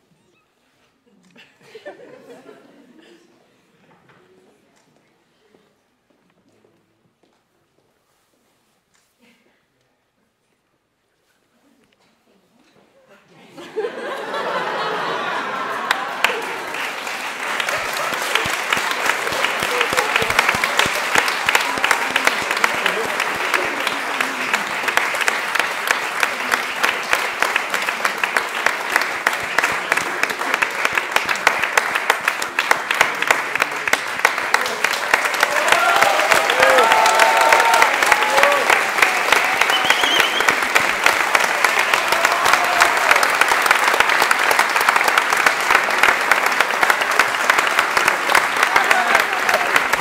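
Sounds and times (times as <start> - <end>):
audience applauding: 13.7 - 50.0.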